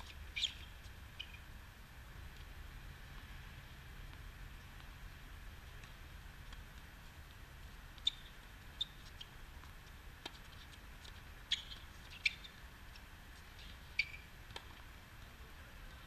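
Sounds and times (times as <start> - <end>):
sneaker squeaks on court: 0.3 - 1.4, 8.0 - 9.3, 11.5 - 12.6, 13.7 - 14.3.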